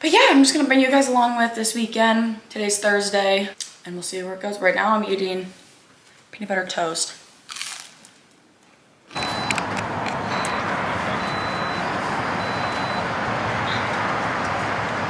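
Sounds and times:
steady vehicle noise: 9.1 - 15.0.

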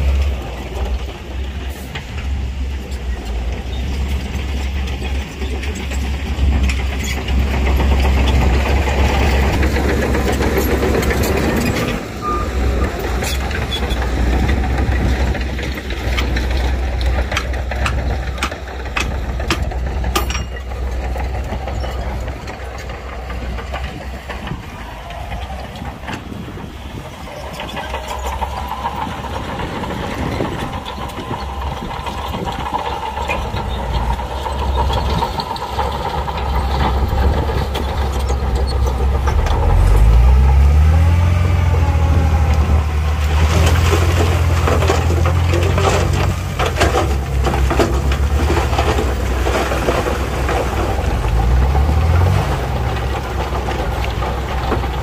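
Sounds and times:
diesel machinery running: 0.0 - 55.0
sharp metallic clanks: 17.4 - 22.2
engine revving: 27.6 - 55.0.

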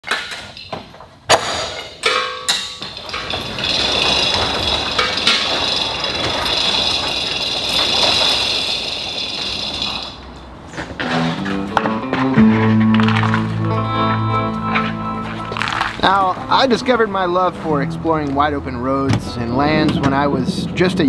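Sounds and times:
rolling door rattling: 0.0 - 13.8
shop door clunks: 19.1 - 20.3.

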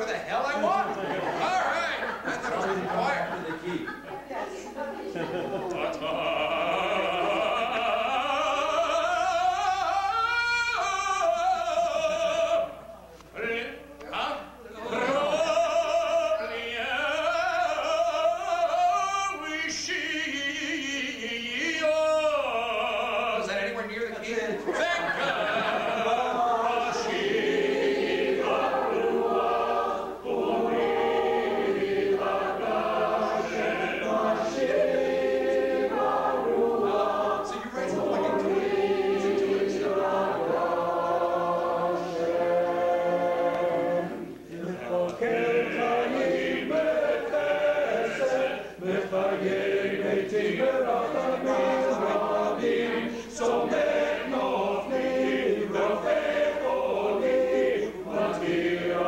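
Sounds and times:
choir singing a cappella: 4.2 - 13.8, 14.8 - 23.5, 25.0 - 59.0.

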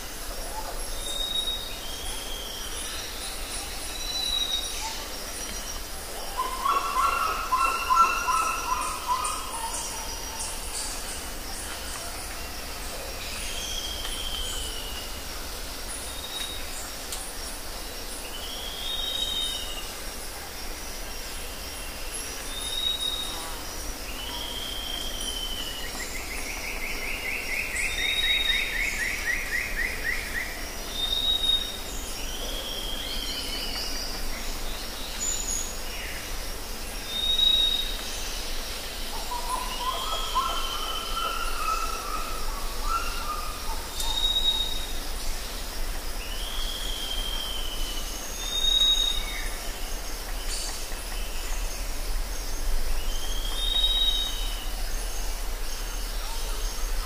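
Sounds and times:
steady high hiss: 0.0 - 57.0.

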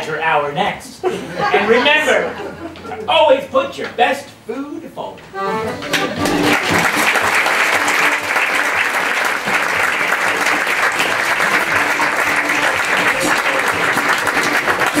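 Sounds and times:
audience applauding: 5.9 - 15.0.

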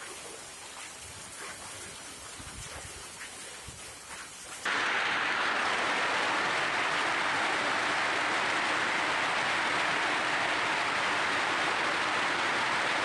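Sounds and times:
hail and heavy rain pouring: 4.7 - 13.0.

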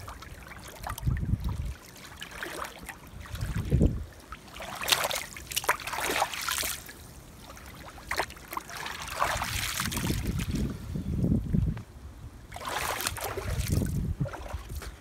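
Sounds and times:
hands splashing in water: 4.5 - 10.6, 12.5 - 14.9.

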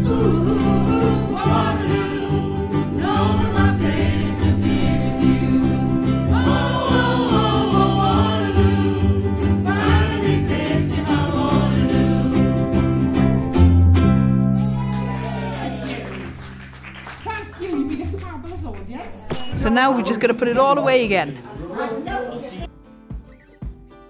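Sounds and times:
group singing: 0.0 - 13.3
ukuleles strumming chords: 0.0 - 16.6.

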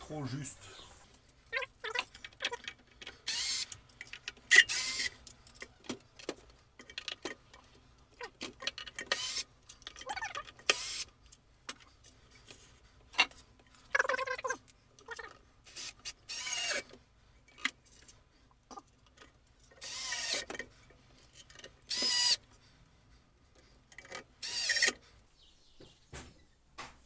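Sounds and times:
knocks clicks and rattles: 1.5 - 22.2.

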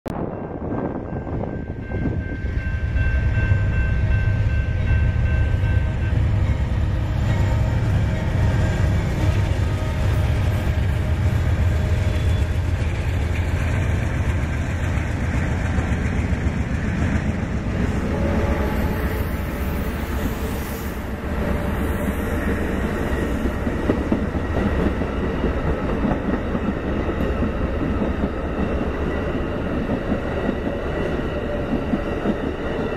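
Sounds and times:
diesel locomotive engine rumble: 0.1 - 32.9
train wheels clattering on rails: 1.8 - 32.9.

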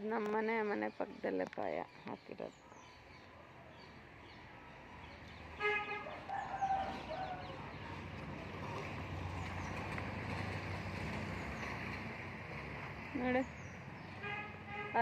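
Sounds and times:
rooster crowing: 6.0 - 7.7.

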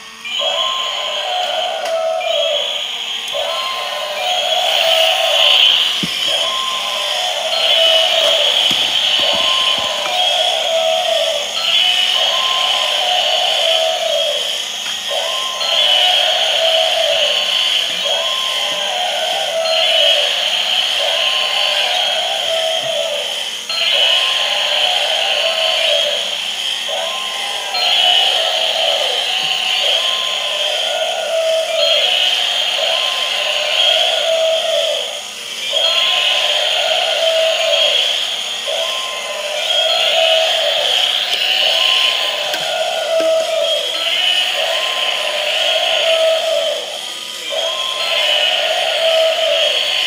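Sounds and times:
buzzy electronic toy sounds: 0.0 - 50.0.

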